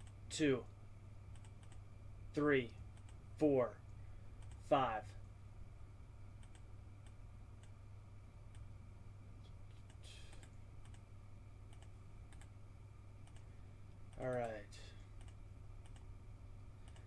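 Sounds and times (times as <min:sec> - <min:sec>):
low electrical hum: 0:00.0 - 0:17.0
computer mouse clicks: 0:01.3 - 0:01.8, 0:02.9 - 0:03.2, 0:04.4 - 0:04.6, 0:06.4 - 0:07.8, 0:09.7 - 0:11.0, 0:11.7 - 0:12.5, 0:13.2 - 0:13.5, 0:15.2 - 0:16.1.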